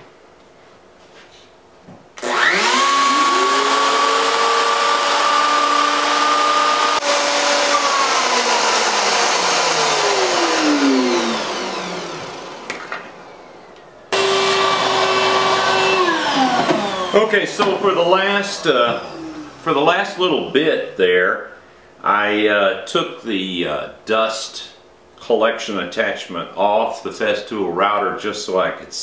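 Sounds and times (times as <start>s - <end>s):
router motor whining: 2.2s - 19.7s.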